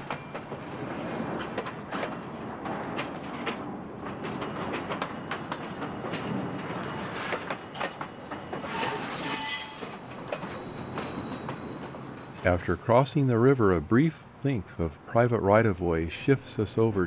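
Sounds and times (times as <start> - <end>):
train rumbling over rail joints: 0.0 - 17.0
wheel squeal: 4.0 - 12.3.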